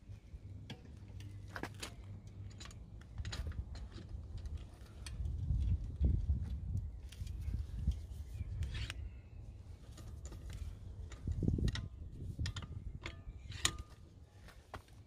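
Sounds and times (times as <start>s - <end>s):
wheel brace loosening bolt: 7.9s - 9.1s, 9.8s - 14.9s.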